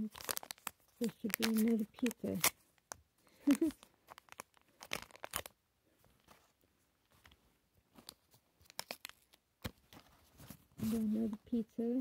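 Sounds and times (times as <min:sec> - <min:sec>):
plastic wrapper tearing and crinkling: 0:00.0 - 0:05.6, 0:08.0 - 0:09.5.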